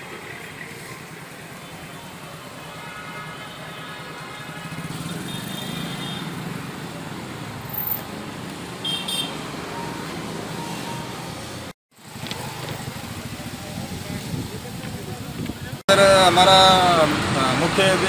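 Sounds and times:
road traffic passing: 0.0 - 18.0.

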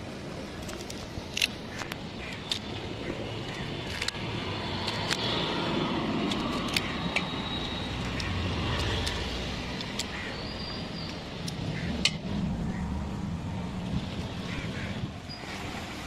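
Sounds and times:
road traffic noise: 0.0 - 16.0
sharp clicks: 6.2 - 10.2.

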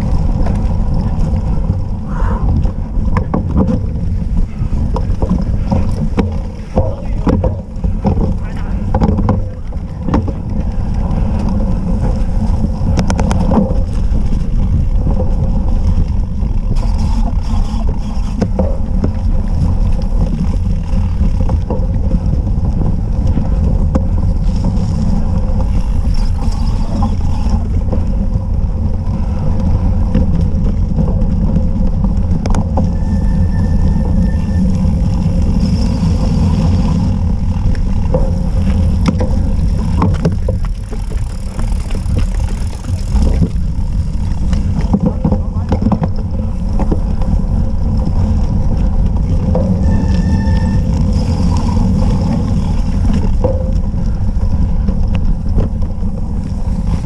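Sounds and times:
bike clicks and rattles: 0.0 - 57.0
low rumble of bike on dirt: 0.0 - 57.0
wind buffeting microphone: 0.0 - 57.0.

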